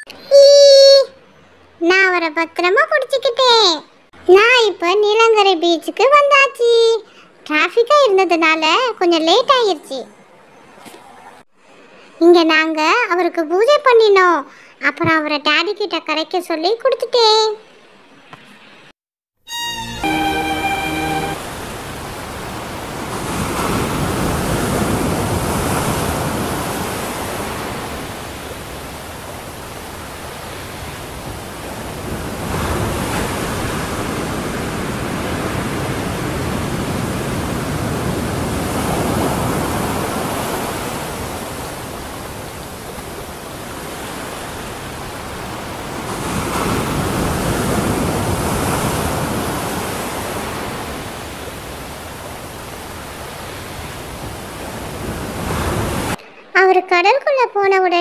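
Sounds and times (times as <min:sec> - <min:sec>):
waves breaking on a beach: 0:20.0 - 0:56.5.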